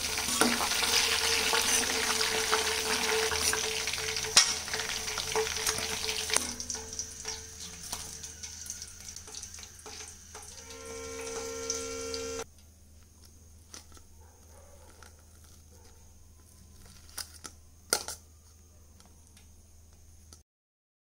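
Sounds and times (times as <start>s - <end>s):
spoon clinking on steel plate: 4.3s - 4.9s
low steady hum: 6.4s - 13.8s
held music chord: 10.6s - 12.4s.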